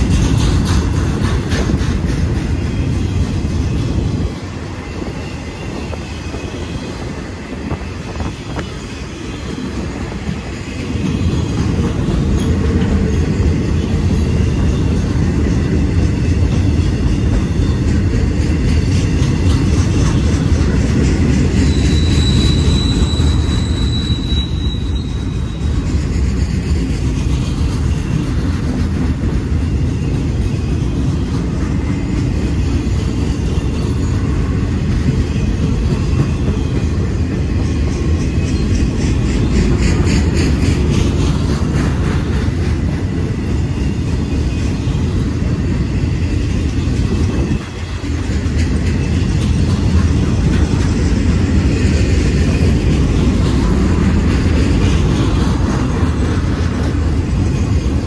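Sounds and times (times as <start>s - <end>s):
freight car wheels rumbling on rail: 0.0s - 58.0s
high wheel squeal: 20.6s - 28.7s.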